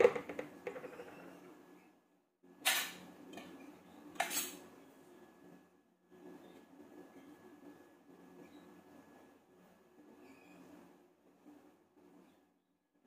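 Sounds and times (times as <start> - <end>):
dishes clattering: 0.0 - 1.3.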